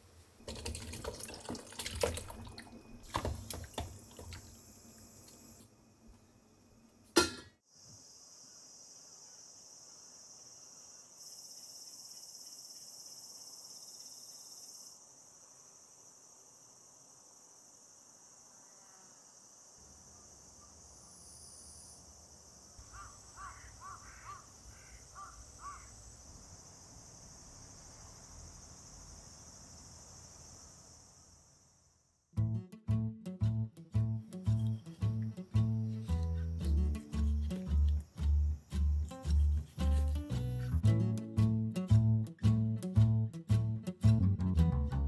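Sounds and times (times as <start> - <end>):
crickets and insects chirping: 0.0 - 32.3, 34.2 - 40.8
metal pot lid clinking: 7.2 - 7.6
crow cawing: 22.8 - 26.0.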